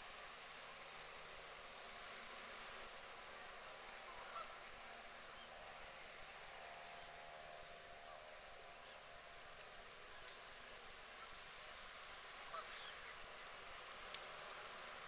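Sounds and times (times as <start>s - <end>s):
faint outdoor hiss: 0.0s - 15.0s
distant waterbird calls: 4.1s - 4.7s, 11.2s - 13.2s.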